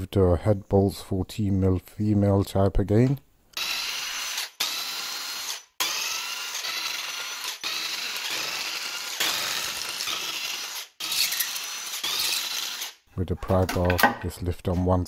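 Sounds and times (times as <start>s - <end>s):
cordless power tool spinning bolts: 3.6s - 13.0s.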